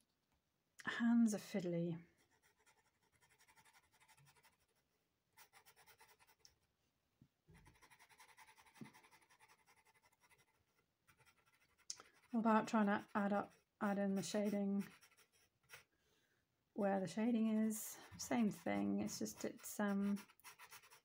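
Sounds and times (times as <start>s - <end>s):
pencil scratching on paper: 2.1s - 4.8s, 5.4s - 6.4s, 7.6s - 15.9s, 17.0s - 21.0s.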